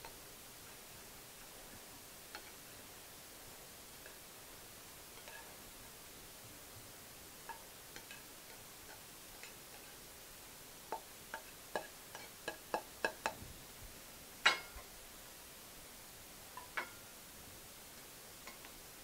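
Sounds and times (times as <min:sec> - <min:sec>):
spatula clicking on frying pan: 0:02.3 - 0:02.6, 0:07.4 - 0:09.9, 0:10.9 - 0:13.4, 0:14.4 - 0:14.9, 0:18.4 - 0:18.8.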